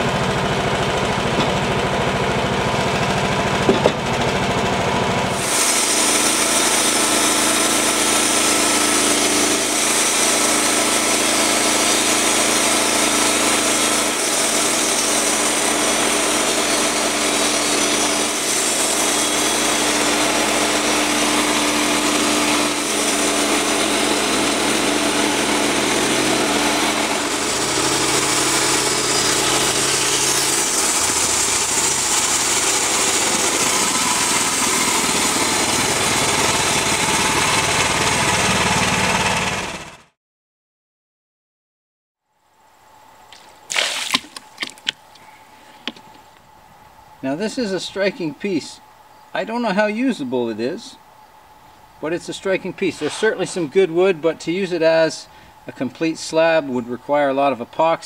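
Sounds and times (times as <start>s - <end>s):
gas engine running under load: 0.0s - 40.2s
band blade sawing wood: 5.3s - 39.8s, 52.0s - 54.2s.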